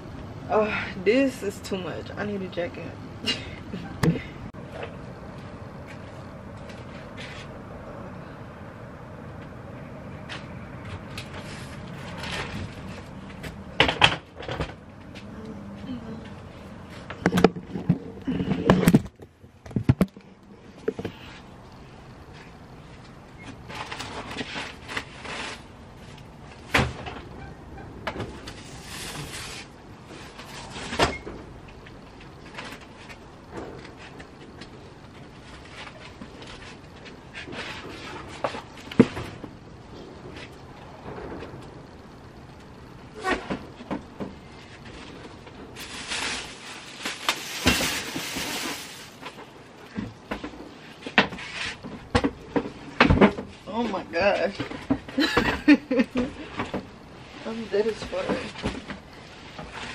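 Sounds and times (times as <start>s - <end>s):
household items rustling and scraping: 16.2s - 21.4s, 22.2s - 26.6s, 32.4s - 39.5s, 43.2s - 59.9s
knocks and clunks: 17.1s - 21.2s.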